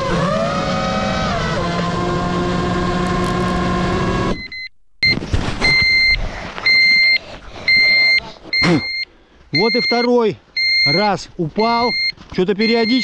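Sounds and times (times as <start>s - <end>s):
drone motors whining: 0.0s - 4.6s
high electronic beeps: 4.3s - 13.0s.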